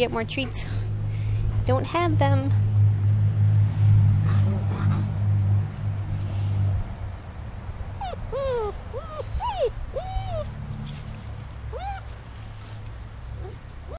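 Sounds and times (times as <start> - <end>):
puppies yipping and whining: 7.9 - 10.6, 11.7 - 12.2, 13.4 - 13.9.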